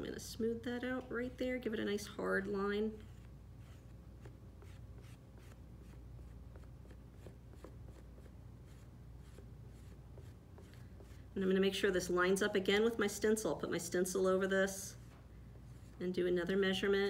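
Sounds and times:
low room hum: 0.0 - 17.0
hand scraping soft clay: 2.4 - 12.1, 14.4 - 16.4.

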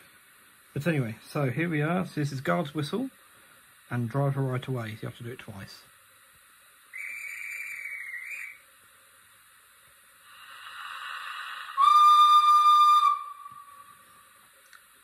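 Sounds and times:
steam hiss: 0.0 - 5.9, 6.7 - 15.0
trilling guard's whistle: 6.9 - 8.6, 11.8 - 14.2
loud steam whistle blast: 10.3 - 14.4.

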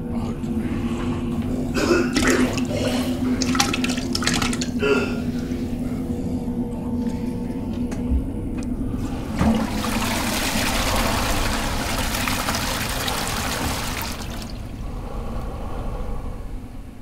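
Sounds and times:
toilet flushing: 1.6 - 5.6, 9.0 - 14.8.

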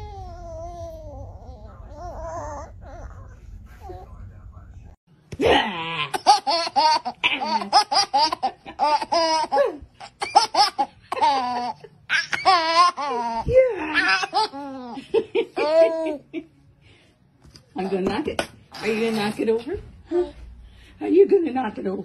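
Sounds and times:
baby laughing: 6.0 - 16.4.

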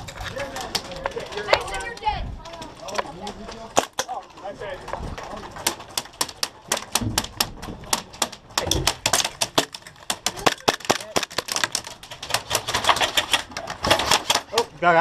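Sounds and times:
airsoft guns firing: 5.7 - 14.5.

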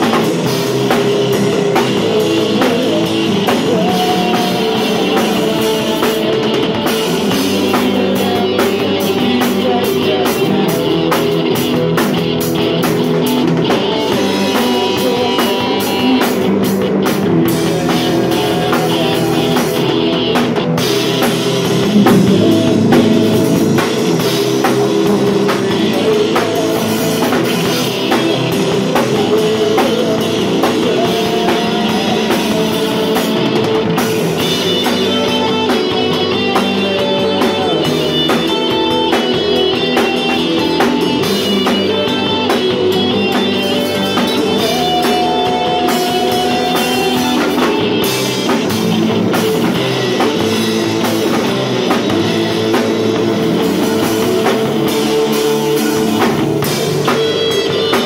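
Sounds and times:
live rock band playing: 0.0 - 58.0
electric bass line: 16.0 - 58.0
drum and cymbal hits: 17.7 - 58.0.

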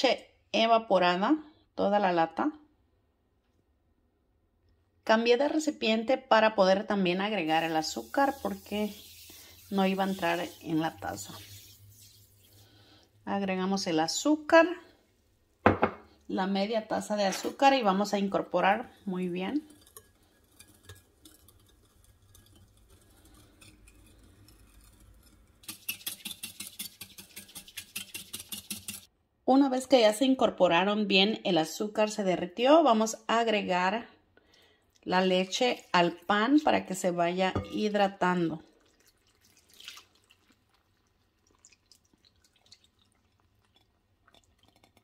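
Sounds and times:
whisk tines clicking against glass: 19.8 - 29.1
milk dripping and splashing: 38.6 - 45.0.

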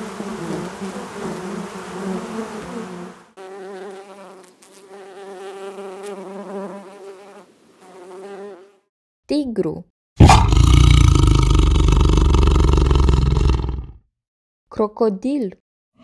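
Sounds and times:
dense hum of many bees: 0.0 - 8.8
single bee buzzing in flight: 0.0 - 8.9.

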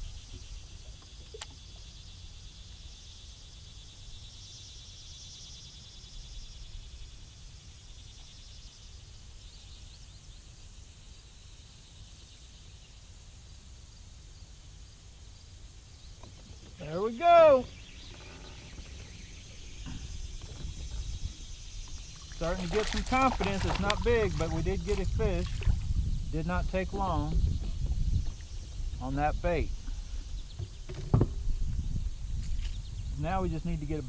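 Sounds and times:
insects trilling: 0.0 - 34.0.

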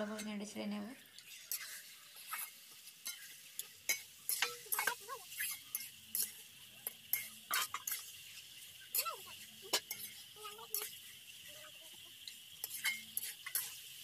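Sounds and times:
frying sizzle: 0.0 - 14.0
metal spatula scraping a pan: 1.1 - 14.0.

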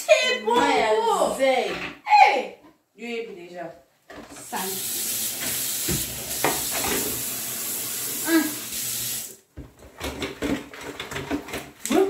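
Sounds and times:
tap water splashing into container: 5.3 - 7.2.

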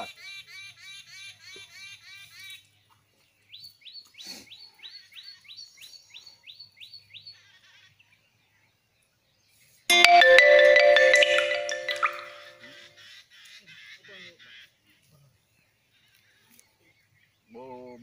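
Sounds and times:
marimba-like melody: 9.9 - 12.6.

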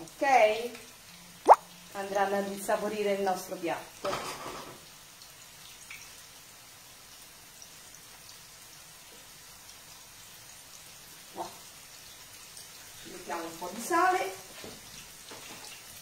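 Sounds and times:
almonds sizzling in hot oil: 0.0 - 16.0.

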